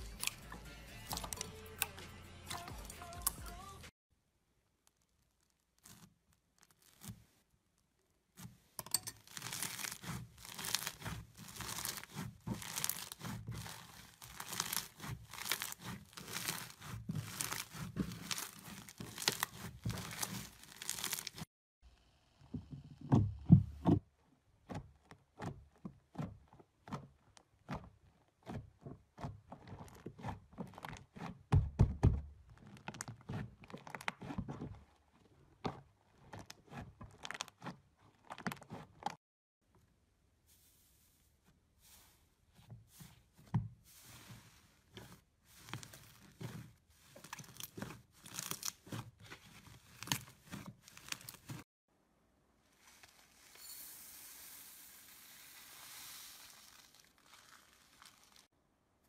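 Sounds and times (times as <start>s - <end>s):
slime squelching: 4.8s - 21.5s, 32.4s - 39.2s, 41.7s - 51.7s, 56.6s - 58.5s
slime beads crackling and popping: 4.9s - 7.1s, 9.2s - 21.5s, 45.6s - 51.6s, 54.9s - 58.5s.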